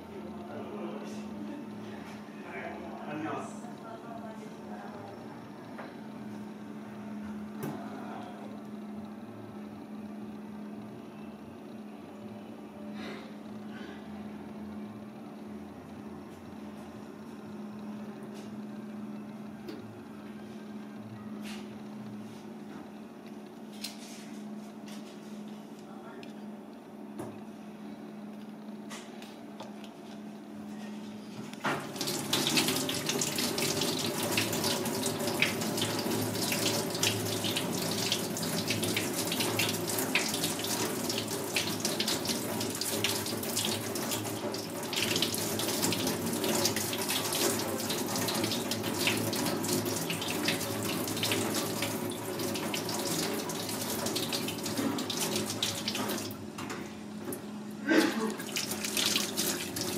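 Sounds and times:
tap water running into a sink: 31.6 - 56.4, 58.3 - 59.9.

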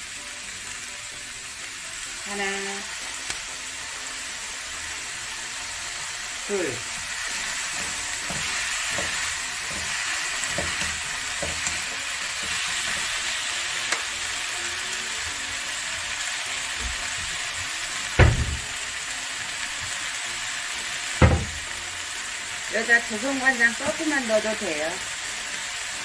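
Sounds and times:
vegetables sizzling in a frying pan: 0.0 - 26.0
loud thump: 18.2 - 18.7, 21.2 - 21.6.

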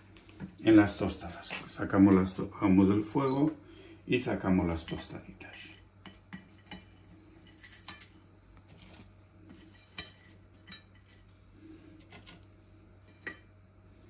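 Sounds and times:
utensils and plates clinking: 8.8 - 11.3.

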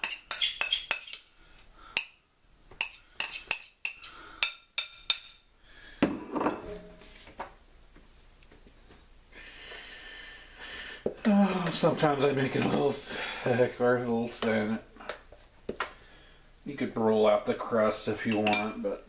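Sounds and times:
metal spoon clinking on pan: 0.0 - 1.2, 2.8 - 5.4, 18.3 - 18.8.

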